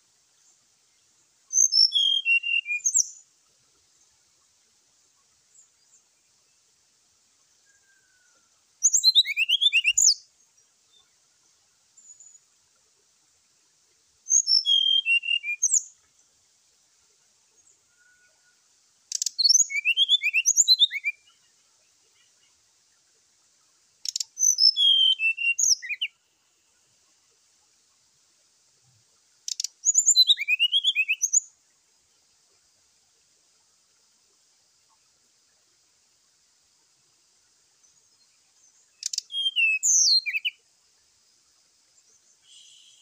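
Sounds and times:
faint high hiss: 0.0 - 43.0.

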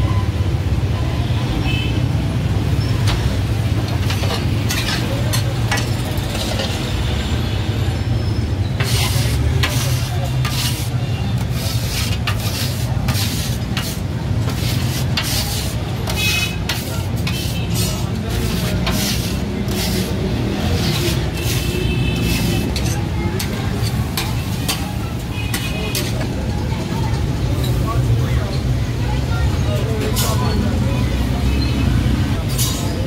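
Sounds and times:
spatulas scraping on a griddle: 3.0 - 6.9, 8.7 - 26.3, 32.5 - 32.9
sizzling: 3.5 - 6.8, 8.7 - 24.9.

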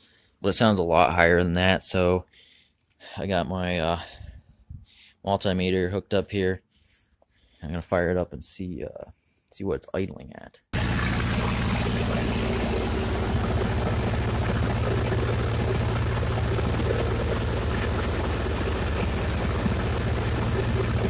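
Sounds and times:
gasoline engine fast idle: 10.8 - 21.0.

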